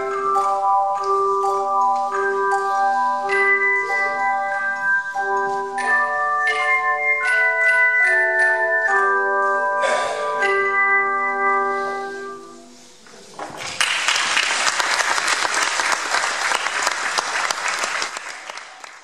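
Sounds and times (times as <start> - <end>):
audience applause: 13.6 - 19.0.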